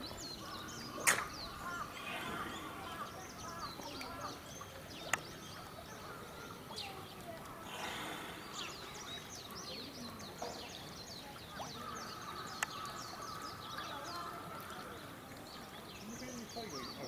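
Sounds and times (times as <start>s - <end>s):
faint background voices: 0.0s - 17.0s
small birds chirping: 0.0s - 17.0s
sharp clicks: 1.0s - 1.4s.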